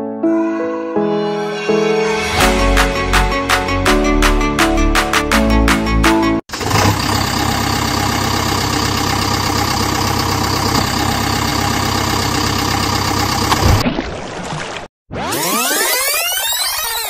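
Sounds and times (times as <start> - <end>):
engine idling: 6.5 - 13.6
water splash: 13.5 - 14.9.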